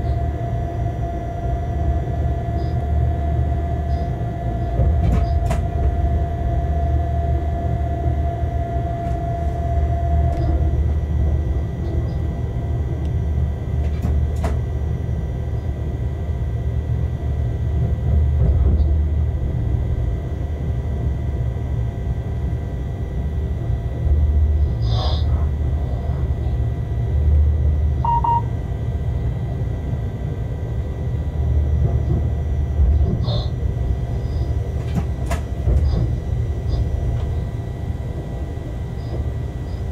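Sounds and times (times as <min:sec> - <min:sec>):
locomotive low rumble: 0:00.0 - 0:39.9
brief high tone: 0:28.0 - 0:28.5.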